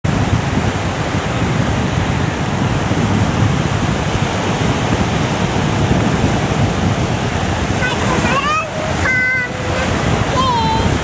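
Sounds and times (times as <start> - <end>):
surf washing onto beach: 0.0 - 11.0
wind noise on microphone: 0.0 - 11.0.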